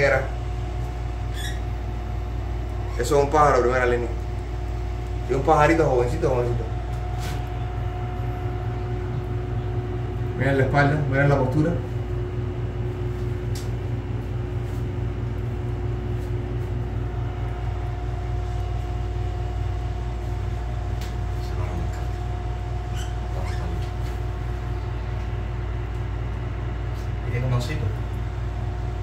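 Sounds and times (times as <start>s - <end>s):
low mechanical hum: 0.0s - 29.0s.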